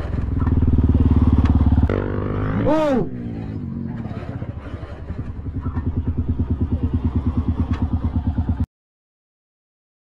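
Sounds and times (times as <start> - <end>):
dirt bike engine idling: 0.0 - 2.2, 3.4 - 8.7.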